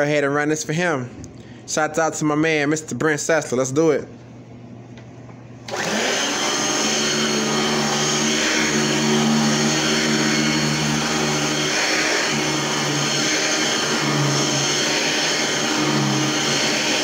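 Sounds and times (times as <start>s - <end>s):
vacuum cleaner motor hum: 5.0s - 17.0s.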